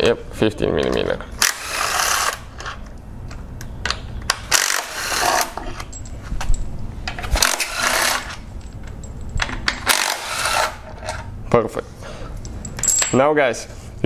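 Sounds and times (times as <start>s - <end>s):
impact driver bursts: 9.8s - 10.8s.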